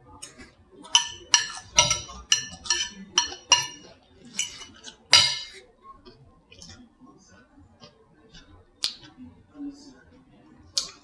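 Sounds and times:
fork clinking on a plate: 0:00.2 - 0:06.8, 0:10.8 - 0:11.0.

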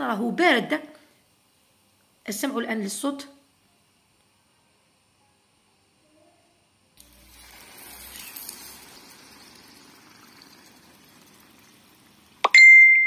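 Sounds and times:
syrup sizzling on hot cake: 0:07.0 - 0:12.5.

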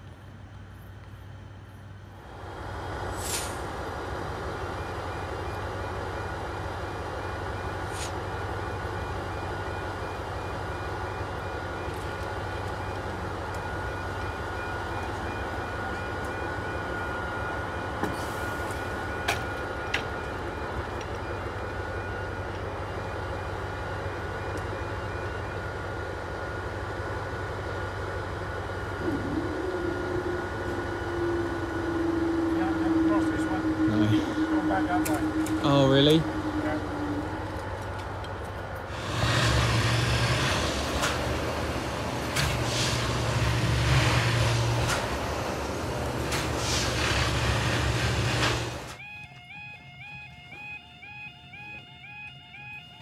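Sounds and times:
repeating alarm tone: 0:08.6 - 0:23.7, 0:28.9 - 0:37.5, 0:48.9 - 0:53.0
steady low drone: 0:10.4 - 0:46.2.

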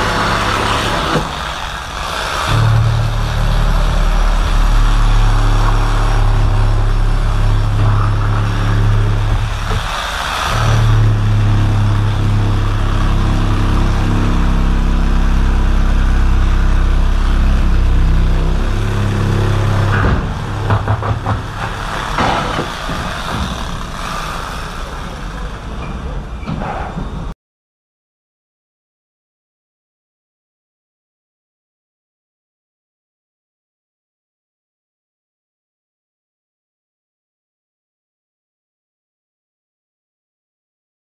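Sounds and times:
machine motor humming: 0:00.0 - 0:26.4
sharp knocks: 0:18.7 - 0:24.6.

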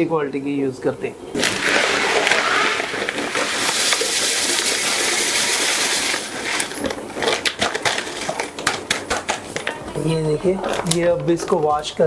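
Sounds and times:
water running: 0:01.3 - 0:12.0.

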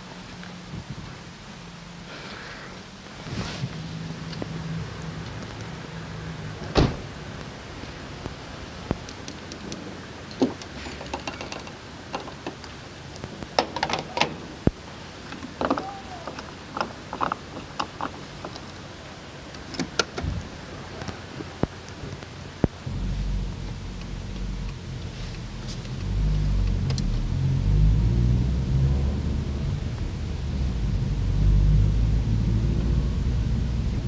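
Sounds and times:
fuel nozzle and pump clicks: 0:08.9 - 0:18.8, 0:19.5 - 0:20.4
low hum: 0:20.2 - 0:34.0.

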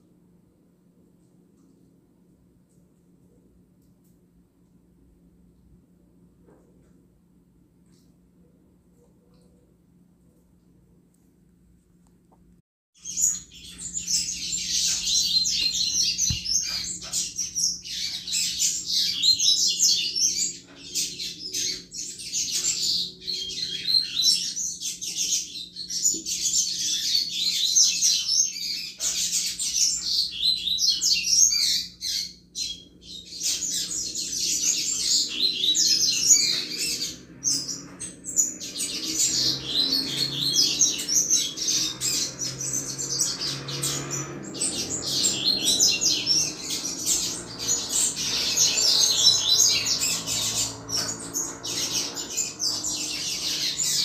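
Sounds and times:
bird singing high chirps: 0:13.0 - 0:54.0.

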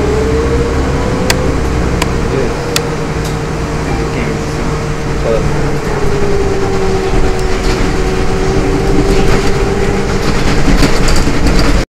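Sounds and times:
train rumble inside carriage: 0:00.0 - 0:11.9
train wheel clicks: 0:05.8 - 0:11.8.

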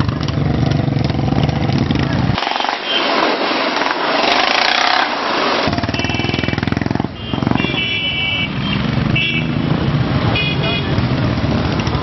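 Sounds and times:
motorcycle engine running: 0:00.0 - 0:02.4, 0:05.7 - 0:07.9
rushing noise: 0:02.1 - 0:07.0.

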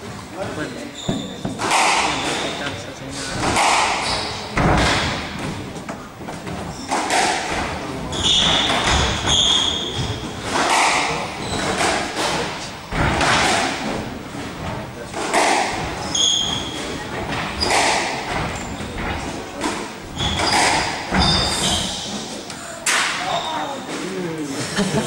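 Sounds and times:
sneaker squeaks on wooden floor: 0:00.6 - 0:05.7, 0:06.4 - 0:12.4, 0:15.7 - 0:22.5, 0:23.2 - 0:24.0
squash ball hits echoing: 0:01.0 - 0:22.0.

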